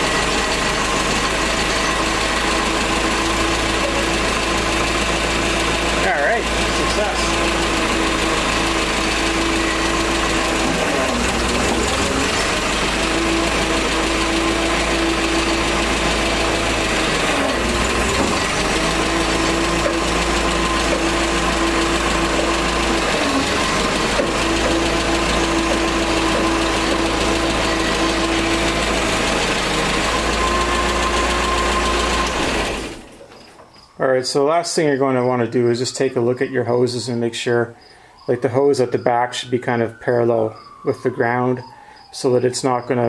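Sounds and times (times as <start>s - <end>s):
forklift engine idling: 0.0s - 37.2s.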